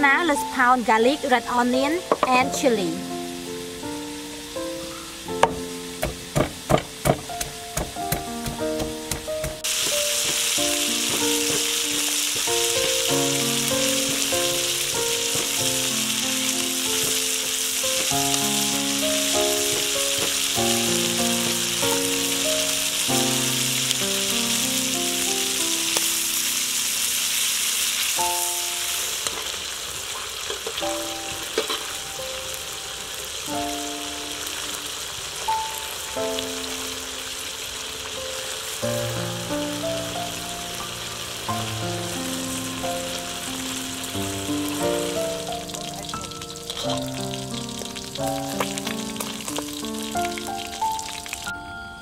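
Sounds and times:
eel deep-frying in oil: 0.0 - 51.5
music with plucked melody: 1.0 - 26.1, 30.7 - 32.4, 38.8 - 52.0.

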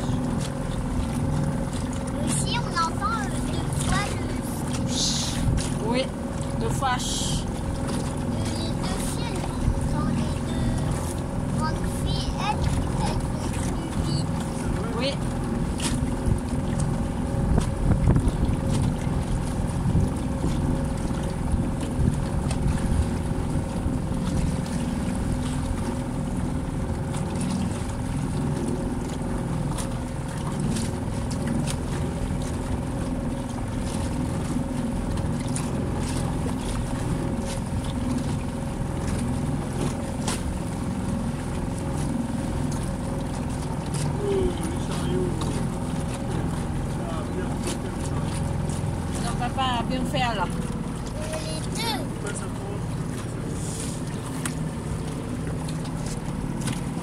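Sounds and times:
outboard motor running: 0.0 - 57.0
water noise: 0.0 - 57.0
wind on microphone: 17.2 - 25.4.

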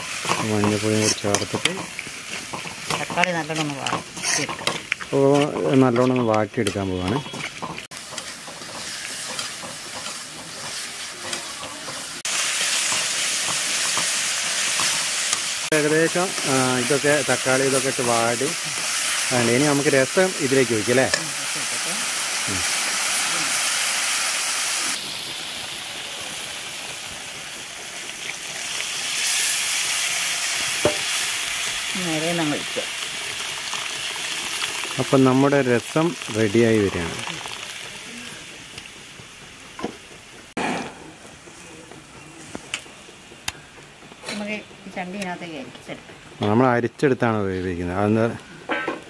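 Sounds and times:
steel spoon stirring in metal pan: 0.0 - 24.7
tomatoes sizzling in hot oil: 0.0 - 48.7.

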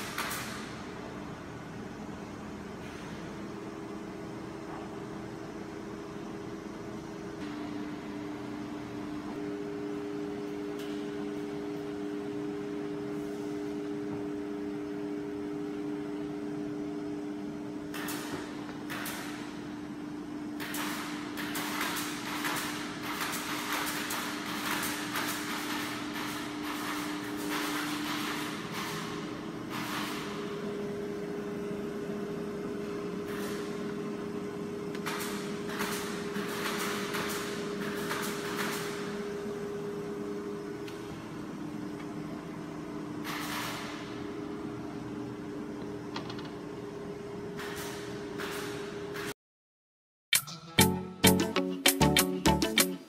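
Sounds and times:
higher steady tone: 50.4 - 53.0.

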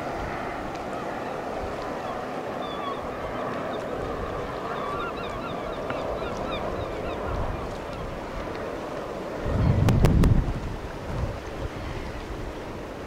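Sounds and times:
water rushing: 0.0 - 13.0
wind: 0.0 - 13.0
birds calling: 1.2 - 8.0.

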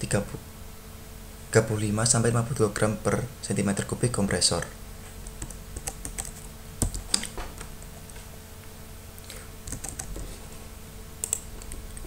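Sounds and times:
faint steady hum: 0.0 - 12.0
computer keys clicking: 4.6 - 7.7, 9.6 - 10.2, 11.2 - 12.0.

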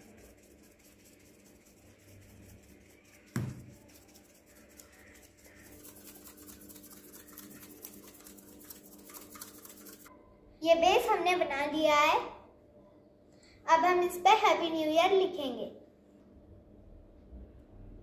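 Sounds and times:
powder shaken onto tile floor: 0.0 - 10.1
knock: 3.3 - 3.8.

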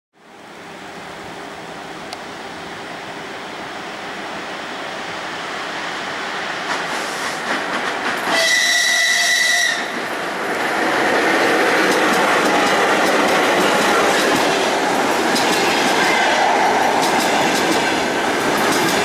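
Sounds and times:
train rolling noise: 0.8 - 19.0
high-pitched locomotive warning signal: 8.3 - 10.0
wheels clicking over rail joints: 10.0 - 16.0, 16.9 - 19.0.

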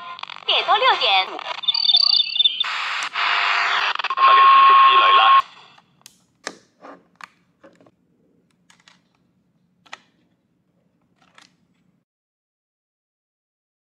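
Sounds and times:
plastic radio handling clicks: 5.8 - 7.9, 8.5 - 9.2, 9.8 - 10.3, 11.1 - 11.6.

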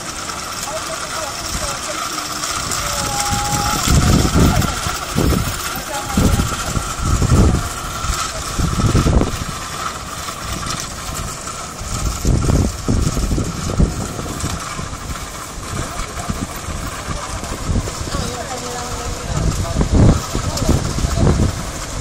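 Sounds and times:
sea surf breaking on rocks: 0.0 - 22.0
wind buffeting the microphone: 2.4 - 22.0.

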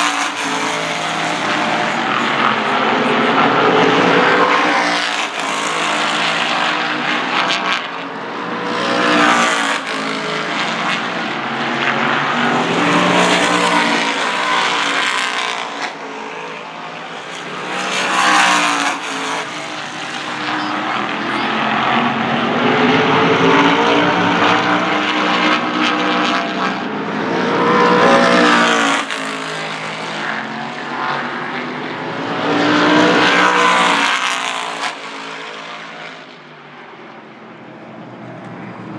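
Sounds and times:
race car engines passing: 0.0 - 38.9.

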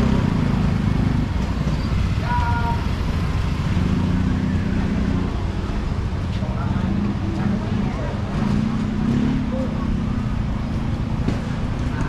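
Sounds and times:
motor traffic hum: 0.0 - 12.0
murmur of voices: 4.3 - 12.0.

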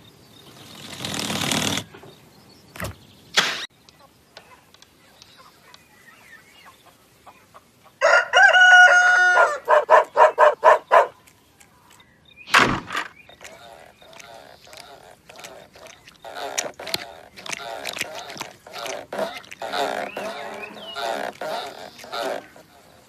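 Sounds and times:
rooster crowing: 8.0 - 10.0.

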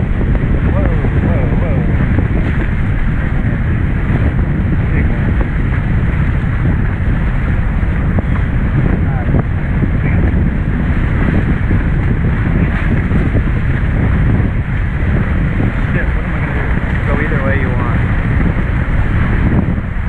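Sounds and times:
water rushing past hulls: 0.0 - 20.0
wind buffeting microphone: 0.0 - 20.0.

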